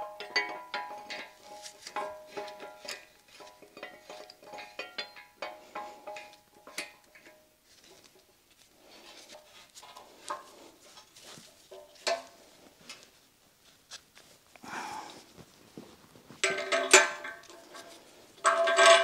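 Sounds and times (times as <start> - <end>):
steel rod clinking on cast iron: 0.0 - 7.5, 11.7 - 12.4, 16.4 - 19.0.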